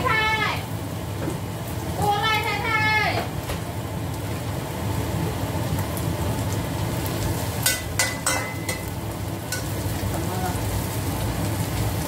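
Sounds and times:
garlic sizzling in hot oil: 0.0 - 12.0
wok ringing: 7.5 - 10.3.

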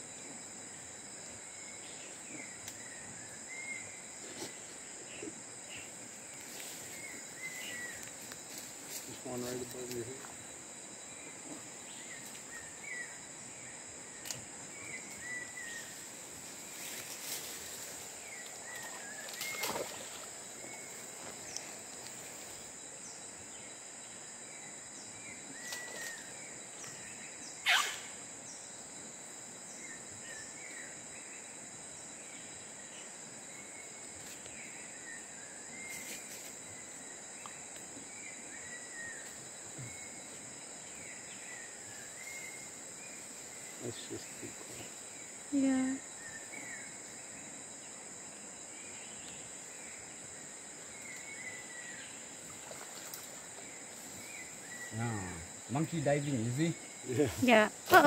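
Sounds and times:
insects droning: 0.0 - 58.0
short chirping calls: 27.6 - 28.1.

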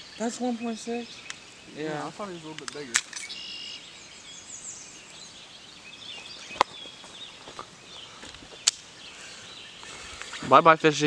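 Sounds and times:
birds chirping and trilling: 0.0 - 11.0
sharp click: 2.6 - 3.4.

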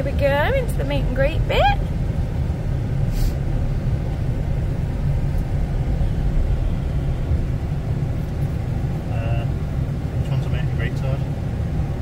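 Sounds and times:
engine and tyre rumble: 0.0 - 12.0
brief hiss: 3.1 - 3.4.

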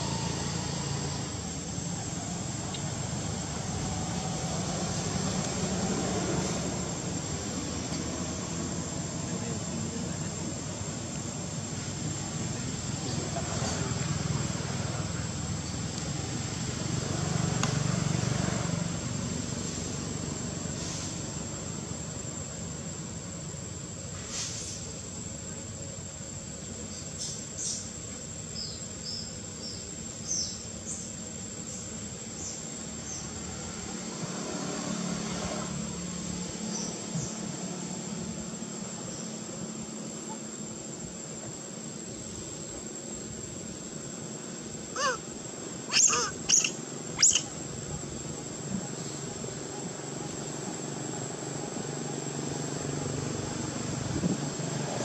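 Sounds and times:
high insect drone: 0.0 - 55.0
faint bird chirps: 44.9 - 45.2, 45.9 - 47.6
short sharp high calls: 44.9 - 45.3, 45.9 - 47.5.

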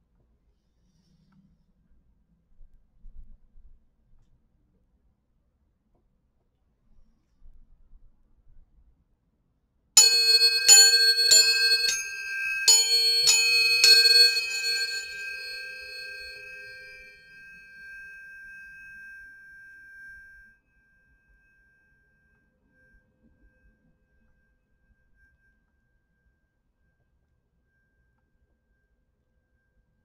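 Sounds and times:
tuning forks struck and ringing: 10.0 - 23.0.

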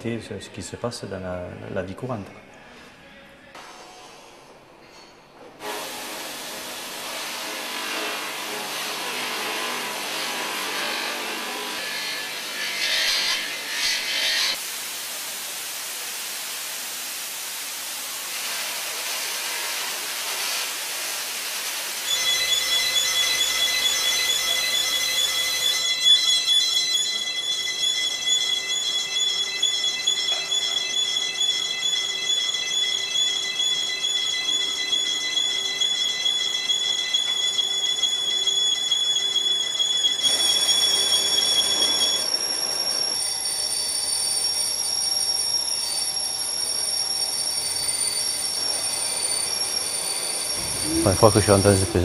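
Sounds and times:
higher machine whine: 22.1 - 39.0, 46.1 - 52.0
lathe whining: 22.1 - 52.0.

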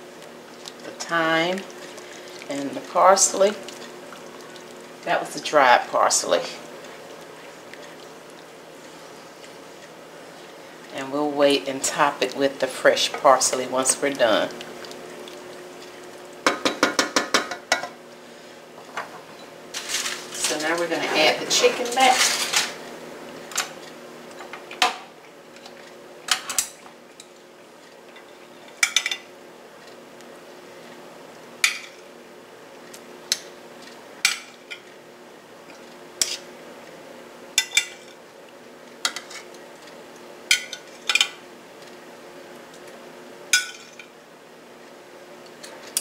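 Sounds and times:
metal tongs clinking on cookware: 19.8 - 22.8, 28.1 - 29.3, 37.6 - 38.1.

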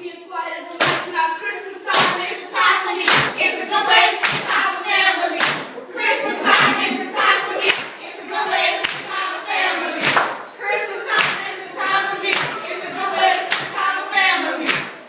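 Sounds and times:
group of voices singing: 0.6 - 15.0
hand claps: 1.9 - 2.2, 3.0 - 3.4, 4.2 - 4.5, 5.4 - 5.8, 7.6 - 7.9, 8.8 - 9.1, 10.0 - 10.4, 11.1 - 11.5, 12.3 - 12.6, 13.5 - 13.8, 14.6 - 15.0.

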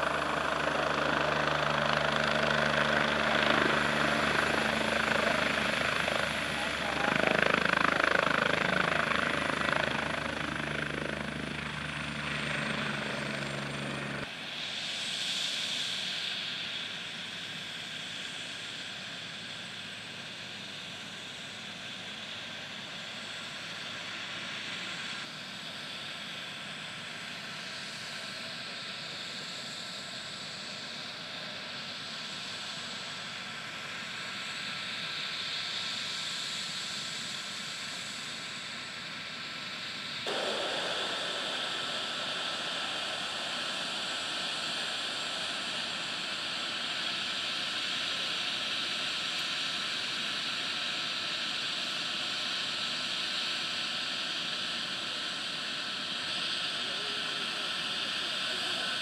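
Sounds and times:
helicopter rotor and engine: 0.0 - 59.0.

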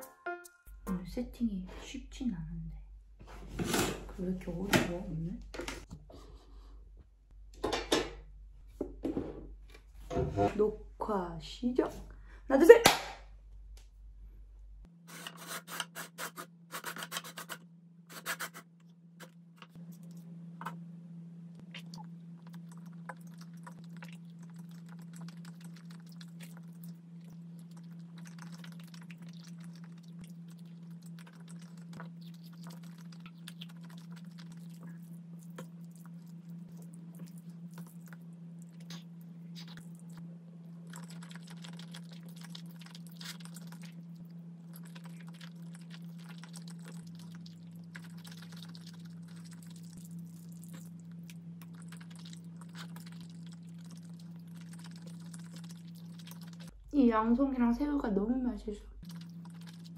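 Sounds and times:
steady low hum: 0.0 - 15.1, 17.4 - 59.9
chewing: 21.6 - 56.8, 59.0 - 59.9
noodles slurped: 21.7 - 56.7.

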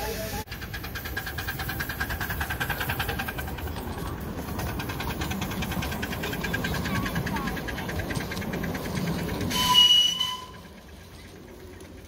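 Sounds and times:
steam hiss: 0.0 - 3.8
carriages running on rails: 0.0 - 12.0
steam locomotive exhaust beating: 0.0 - 12.0.

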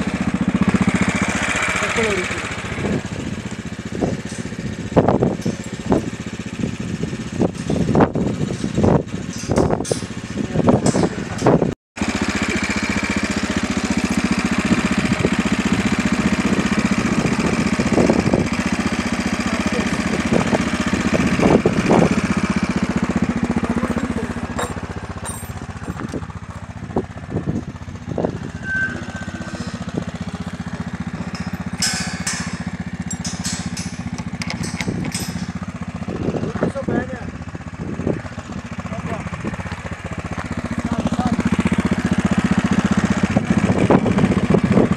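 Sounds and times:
car engine and road hum: 0.0 - 11.8, 13.2 - 44.9.

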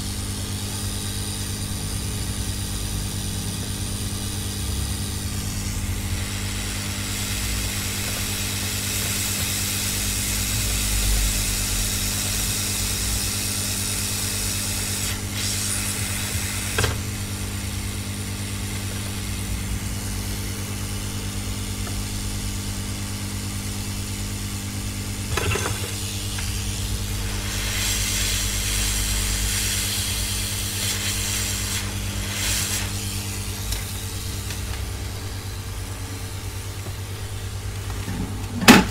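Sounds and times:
hot air gun blowing: 5.3 - 11.3, 12.1 - 19.2, 25.0 - 35.6.

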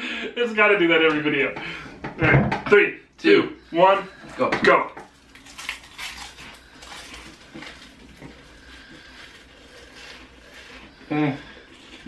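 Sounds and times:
people crunching crackers: 5.0 - 12.0.

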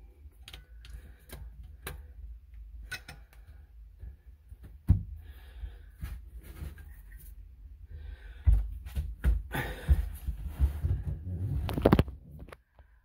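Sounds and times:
phone handling rumble and rubbing: 10.8 - 12.6.

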